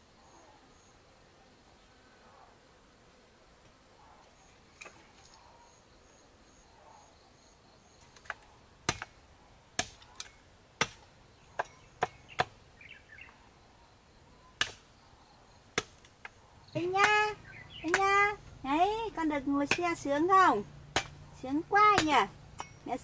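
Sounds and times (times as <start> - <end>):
machete chopping bamboo: 8.2 - 9.2, 9.8 - 12.6, 14.6 - 14.8, 15.7 - 18.3, 19.7 - 20.3, 20.9 - 21.2, 21.8 - 22.8
faint pulsed high chirping: 22.5 - 23.0.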